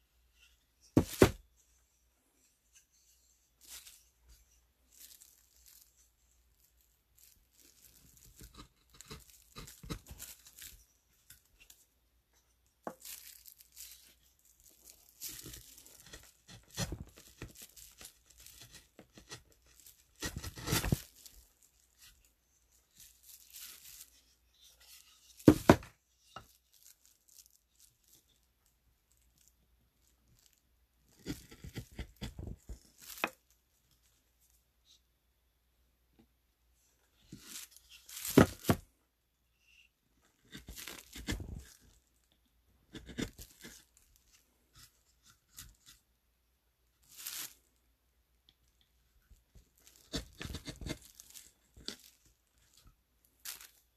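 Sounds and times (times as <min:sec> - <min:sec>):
carving tool scraping wood: 0:07.9 - 0:10.5, 0:15.3 - 0:21.1, 0:31.2 - 0:33.3, 0:40.4 - 0:41.7, 0:42.9 - 0:43.9, 0:49.9 - 0:51.0.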